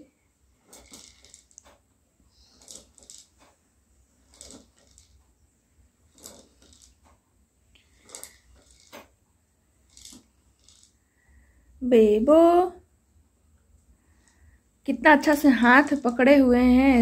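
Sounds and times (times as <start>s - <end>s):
rocking horse creaks and knocks: 0.6s - 1.9s, 2.5s - 3.6s, 4.2s - 5.3s, 6.1s - 7.2s, 8.0s - 9.2s.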